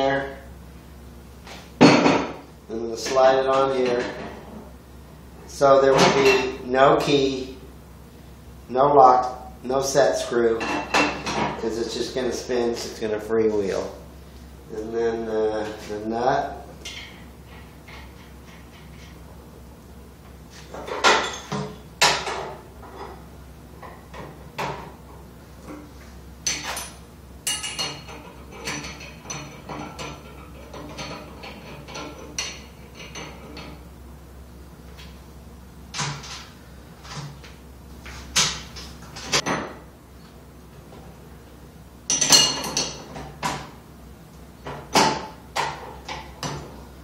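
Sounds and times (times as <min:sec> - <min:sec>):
wrenches clanking on metal: 0:26.5 - 0:33.8.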